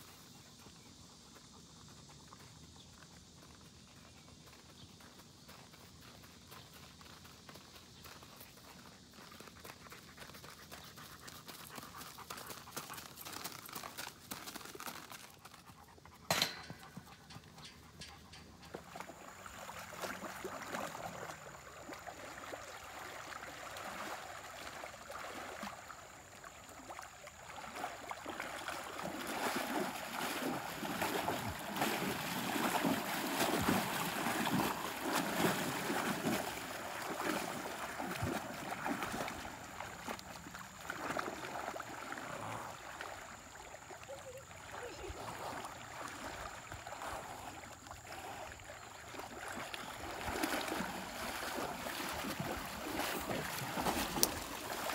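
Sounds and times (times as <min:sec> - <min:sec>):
hooves on gravel: 0:00.0 - 0:20.2, 0:29.4 - 0:41.4
horse splashing through water: 0:07.6 - 0:54.9.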